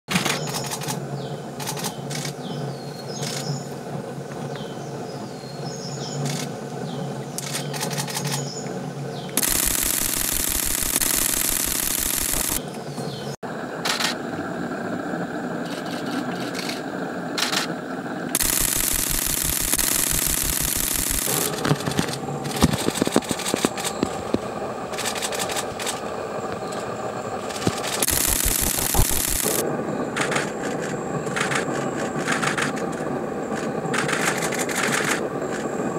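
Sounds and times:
rapid camera shutter clicks: 0.1s - 1.0s, 1.6s - 2.4s, 6.2s - 6.5s, 7.4s - 8.5s, 9.4s - 12.6s, 15.7s - 16.8s, 17.4s - 17.8s, 18.4s - 26.1s, 27.4s - 29.6s, 30.2s - 33.0s, 33.6s - 35.6s.

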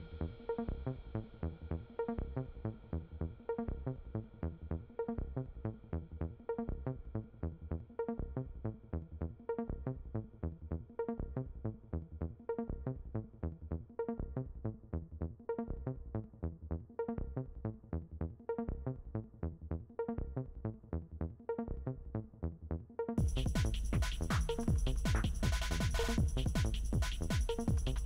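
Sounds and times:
electronic music with quick beat: 23.2s - 28.0s.

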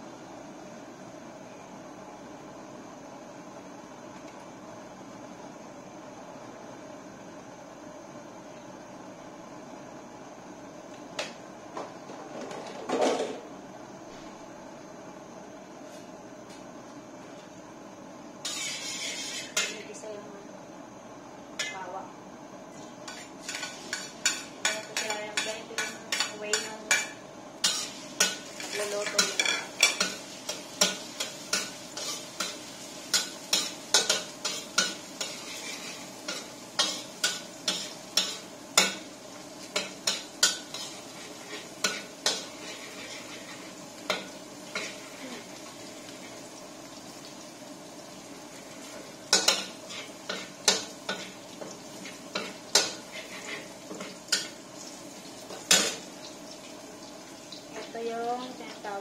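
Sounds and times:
garlic sizzling: 18.2s - 59.0s
metal spatula scraping a wok: 18.4s - 19.8s, 23.1s - 39.0s, 39.8s - 45.3s, 49.4s - 54.5s.

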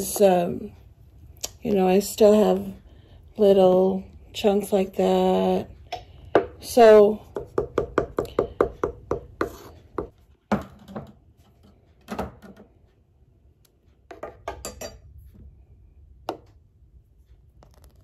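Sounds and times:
wooden spoon stirring a pot: 0.0s - 10.3s.

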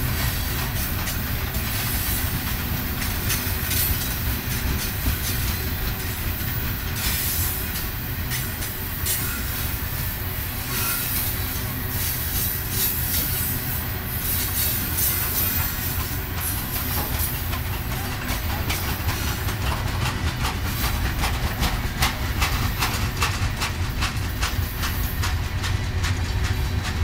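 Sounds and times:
freight train rumbling: 0.0s - 27.0s
wheels clicking over rail joints: 0.0s - 27.0s.

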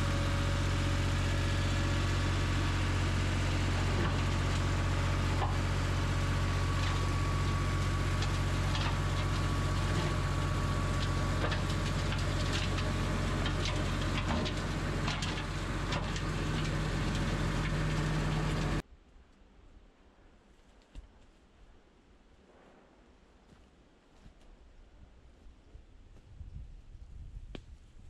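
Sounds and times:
flail mower chopping vegetation: 0.0s - 18.8s
tractor diesel engine running: 0.0s - 18.8s.

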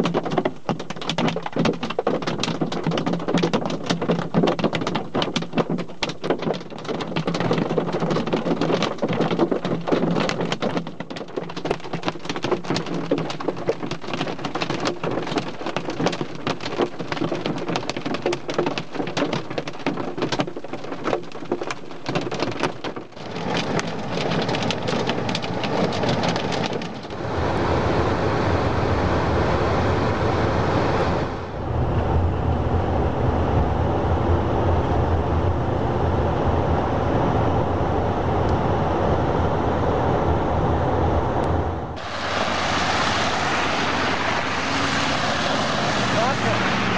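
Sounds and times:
hail drumming on car: 0.0s - 27.2s, 42.0s - 46.9s
car driving on wet road: 0.0s - 36.7s, 41.4s - 46.9s
low engine hum: 23.2s - 46.9s.

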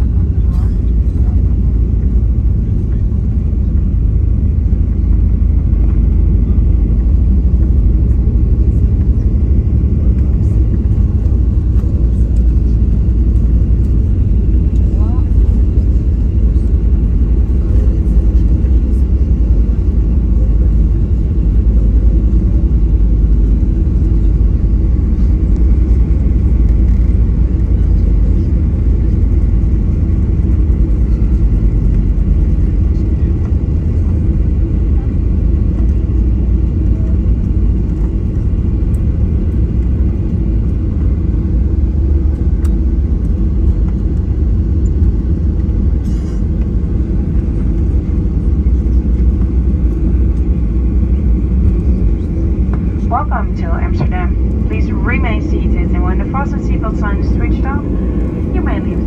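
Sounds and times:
aircraft cabin rumble: 0.0s - 59.0s.

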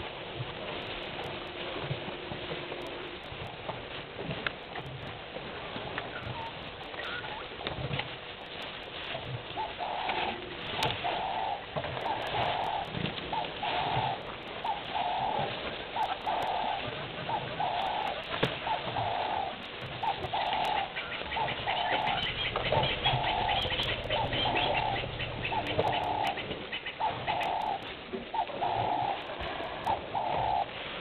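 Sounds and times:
dove cooing: 9.6s - 30.7s.

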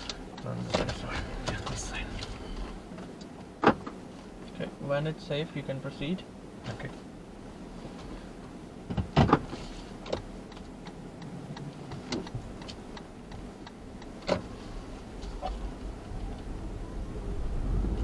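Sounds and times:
turn signal ticking: 0.0s - 3.7s, 9.8s - 16.6s
car engine and road noise: 0.0s - 18.0s.

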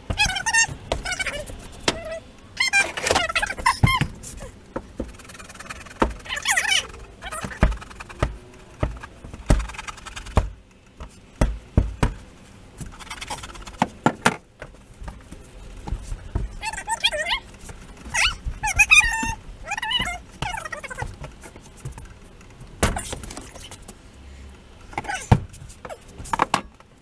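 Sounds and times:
knocks and thumps: 0.0s - 2.1s, 2.7s - 23.6s
dog whining: 5.2s - 8.1s, 18.1s - 21.1s.

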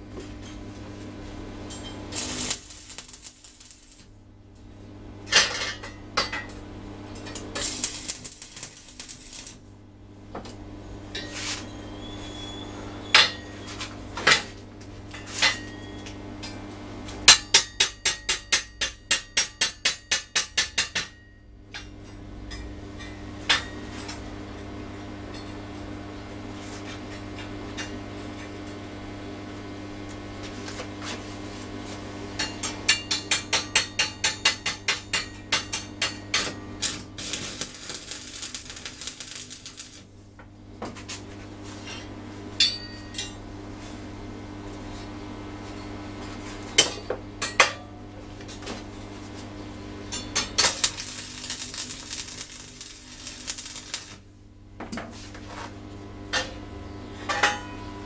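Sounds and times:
low electrical hum: 0.0s - 58.0s
hammer tapping on steel: 17.3s - 21.2s.

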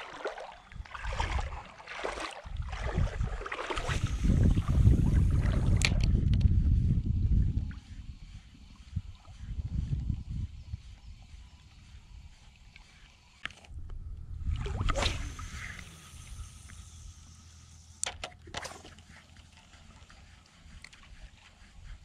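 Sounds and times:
wind and water rumble: 0.0s - 22.0s
fishing rod swish: 14.6s - 17.2s.

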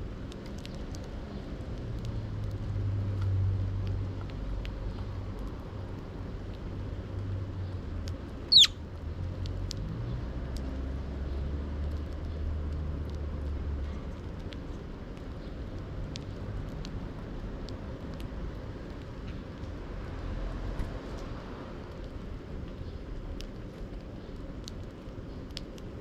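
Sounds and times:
beaks pecking seed on wood: 0.0s - 26.0s
sparrow chirp: 8.5s - 8.8s.

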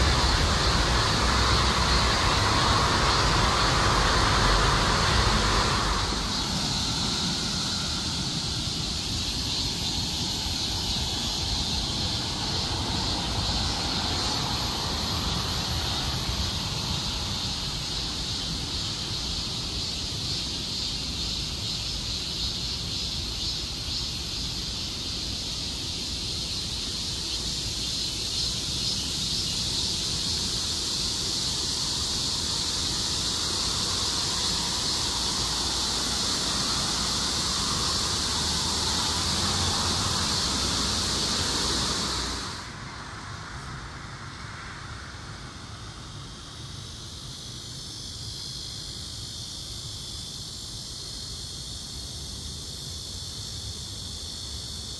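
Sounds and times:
road traffic rumbling: 0.0s - 21.8s, 25.7s - 46.2s
cicadas buzzing: 0.0s - 54.9s.

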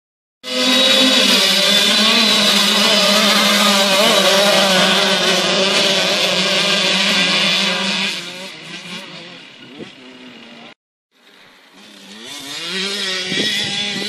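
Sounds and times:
motocross bikes revving: 0.4s - 14.0s.

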